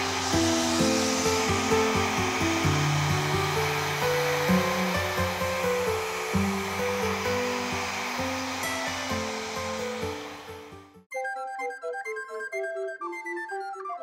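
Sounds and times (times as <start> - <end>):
hair dryer blowing: 0.0 - 11.1.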